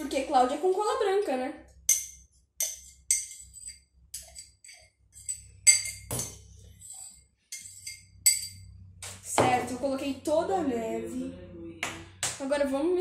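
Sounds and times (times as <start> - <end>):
metal spoon clinking on glass jar: 1.9 - 8.8.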